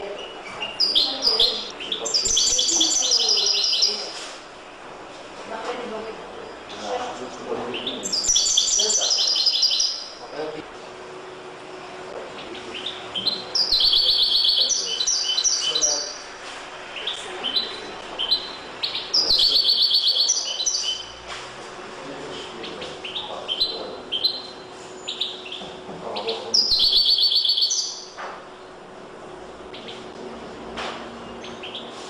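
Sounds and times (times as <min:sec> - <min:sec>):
goldfinch chirped notes: 0:00.1 - 0:04.1, 0:07.7 - 0:10.3, 0:12.4 - 0:16.3, 0:17.0 - 0:21.2, 0:22.6 - 0:25.6, 0:26.2 - 0:28.2, 0:31.2 - 0:32.0
goldfinch trills: 0:00.1 - 0:04.1, 0:07.7 - 0:10.2, 0:12.4 - 0:16.2, 0:17.0 - 0:21.2, 0:22.6 - 0:28.2.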